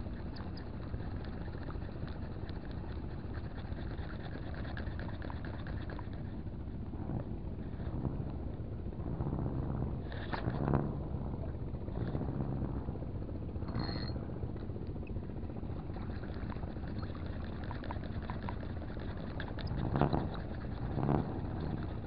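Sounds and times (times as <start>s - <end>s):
motorboat engine running: 0.0s - 22.0s.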